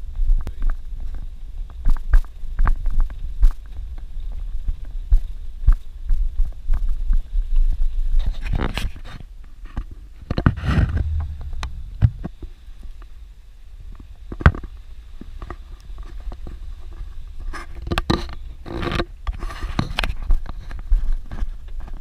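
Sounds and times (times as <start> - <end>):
knocks and rattles over bumps: 10.4 - 12.5
car rumble inside cabin: 10.7 - 12.4.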